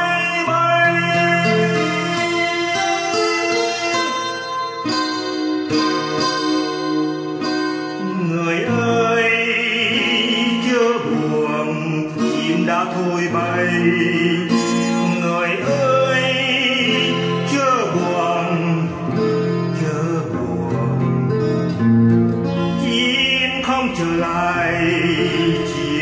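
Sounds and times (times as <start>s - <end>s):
acoustic guitar playing: 0.0s - 26.0s
person singing: 0.0s - 26.0s.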